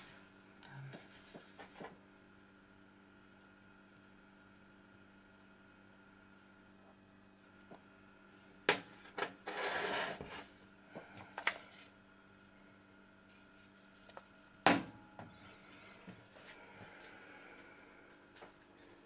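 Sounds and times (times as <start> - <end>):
scraping on counter: 9.4 - 10.6.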